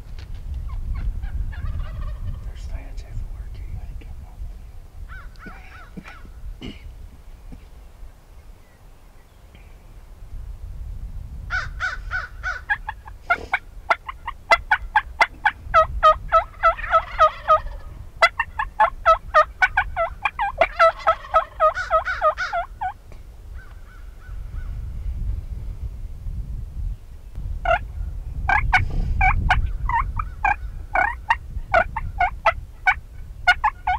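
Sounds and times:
turkeys gobbling: 0.9 - 2.4, 11.5 - 23.0, 27.6 - 27.8, 28.5 - 33.9.

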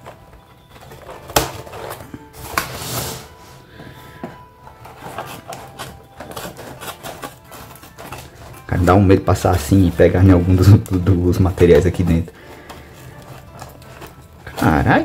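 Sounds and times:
background music: 0.0 - 15.0
scissors cutting cardboard: 4.8 - 8.9, 12.7 - 14.8.

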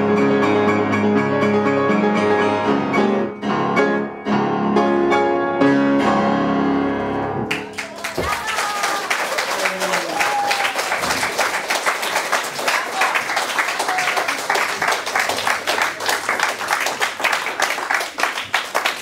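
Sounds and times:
audience applauding: 7.5 - 19.0.

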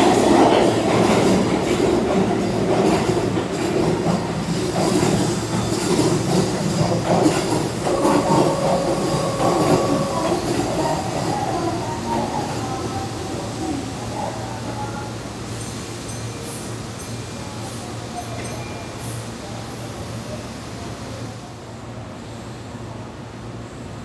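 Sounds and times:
electric train running: 0.0 - 15.1.

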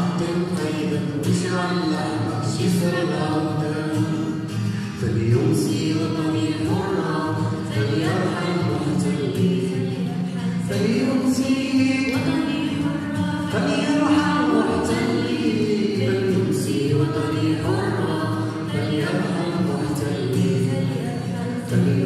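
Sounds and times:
girl singing into microphone: 5.9 - 22.0.

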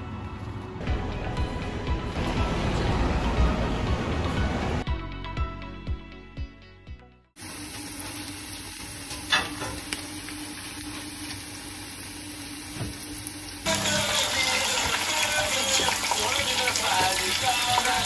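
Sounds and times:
music: 0.0 - 7.4, 13.7 - 18.0
loud rushing noise: 0.9 - 4.9
food sizzling in a frying pan: 7.4 - 18.0.

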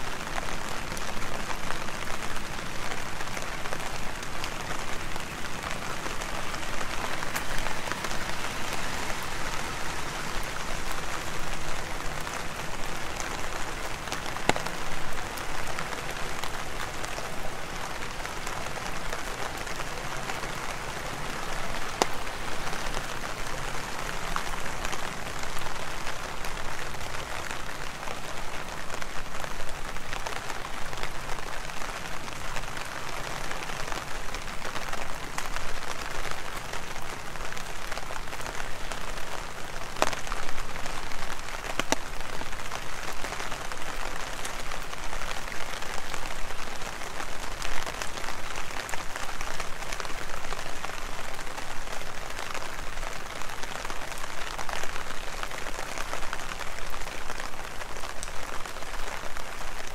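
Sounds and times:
heavy rain: 0.0 - 59.9
sharp raindrop ticks: 41.4 - 42.1.

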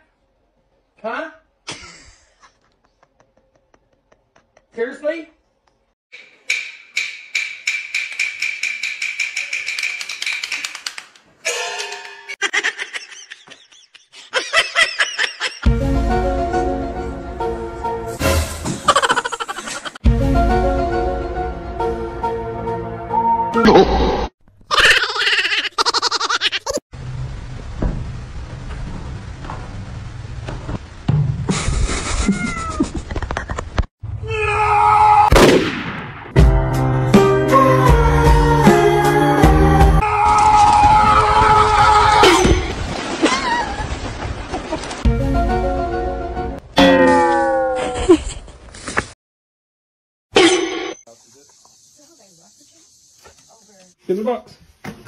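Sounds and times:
chattering laughter: 1.7 - 4.8, 12.4 - 15.7, 18.9 - 20.0
rapid wooden taps: 6.5 - 11.3.

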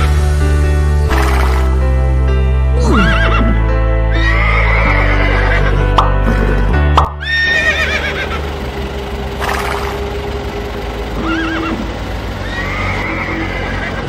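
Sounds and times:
music: 0.0 - 14.0
horse whinnying: 2.8 - 5.8, 7.2 - 8.3, 12.4 - 14.0.

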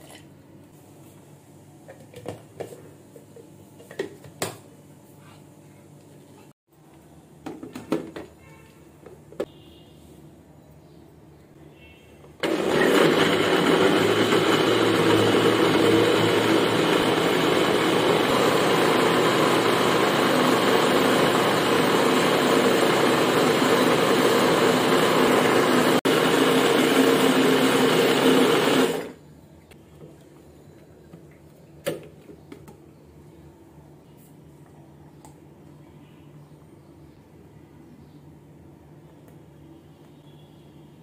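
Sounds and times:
electric blender running: 12.4 - 29.2.

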